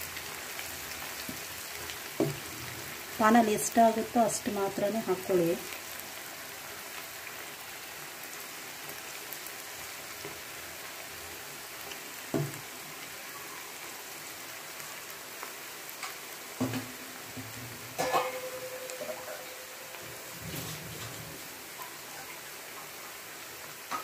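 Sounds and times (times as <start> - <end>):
food deep-frying in oil: 0.0 - 24.0.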